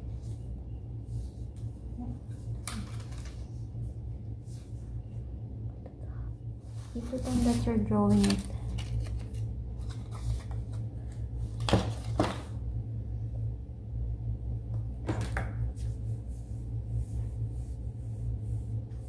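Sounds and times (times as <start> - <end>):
steady low hum: 0.0 - 19.0
paper rustling and tapping: 7.1 - 10.8.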